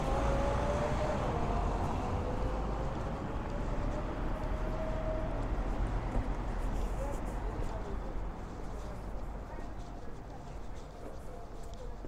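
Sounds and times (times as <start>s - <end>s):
passing vehicle engine hum: 0.0s - 8.6s
steady low traffic rumble: 0.0s - 12.0s.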